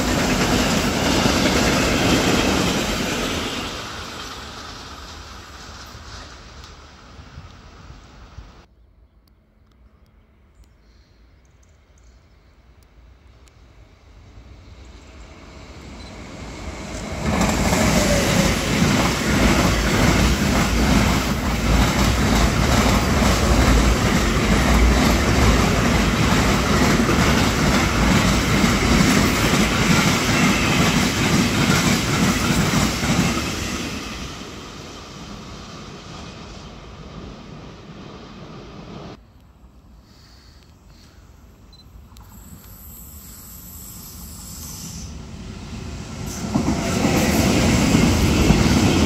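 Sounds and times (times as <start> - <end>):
electric locomotive passing: 0.0 - 8.7, 12.5 - 40.0, 41.3 - 49.0.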